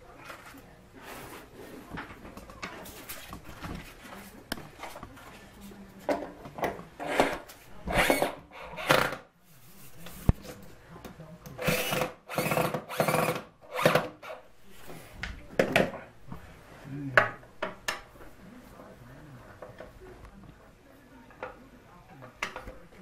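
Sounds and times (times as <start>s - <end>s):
cordless drill driving screws: 11.6s - 14.1s.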